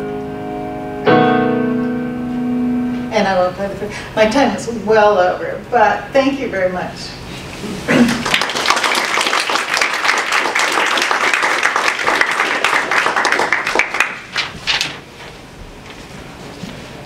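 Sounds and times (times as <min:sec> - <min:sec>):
audience applauding: 0:08.1 - 0:14.4.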